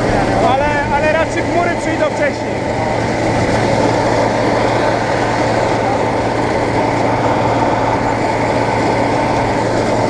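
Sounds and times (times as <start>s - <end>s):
combine harvester running: 0.0s - 10.0s.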